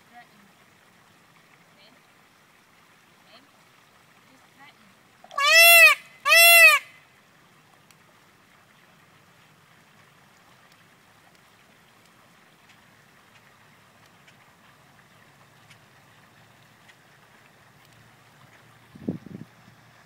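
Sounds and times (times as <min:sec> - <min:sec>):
peacock wailing calls: 0:05.3 - 0:07.0.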